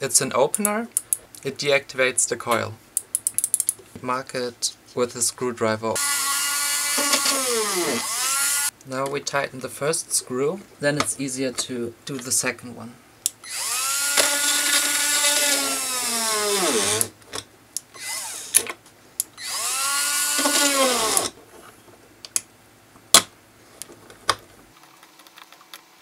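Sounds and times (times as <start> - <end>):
drill motor whining: 6.0 - 8.7, 13.4 - 17.1, 18.0 - 18.6, 19.4 - 21.3.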